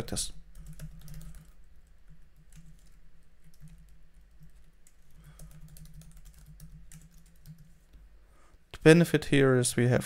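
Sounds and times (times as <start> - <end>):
computer keyboard typing: 0.5 - 7.8.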